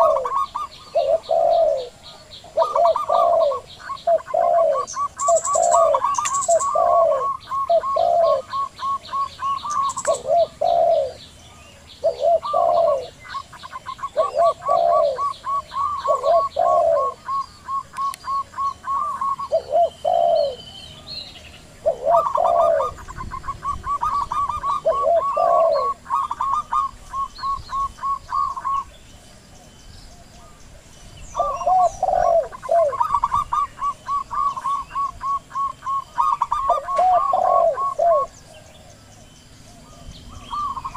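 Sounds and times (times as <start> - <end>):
short high dove coos: 0.0 - 2.0, 2.6 - 11.2, 13.7 - 20.6, 21.8 - 28.8, 31.4 - 38.3
slow low dove coos: 0.0 - 11.3, 12.0 - 20.8, 21.8 - 28.9, 31.4 - 40.9.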